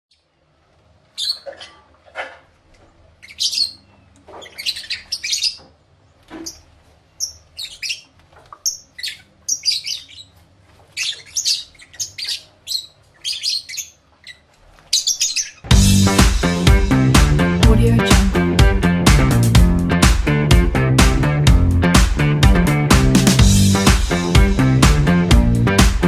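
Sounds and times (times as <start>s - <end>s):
lovebirds chirping: 1.1s - 1.9s, 3.1s - 16.8s.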